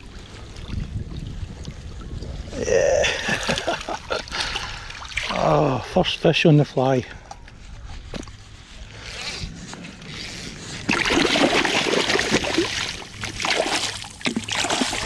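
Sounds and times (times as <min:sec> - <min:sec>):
fish splashing in water: 0:10.8 - 0:15.0.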